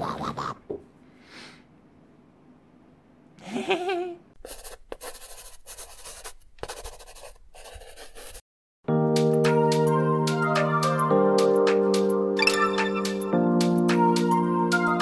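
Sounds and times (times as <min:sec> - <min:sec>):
pen scribbling on paper: 0:04.4 - 0:08.4
music jingle: 0:08.9 - 0:15.0.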